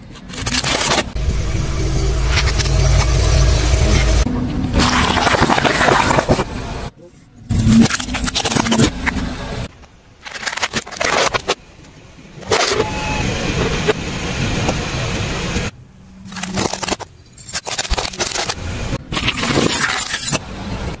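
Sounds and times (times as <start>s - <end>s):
tyre crushing plastic toys: 4.8s - 6.5s.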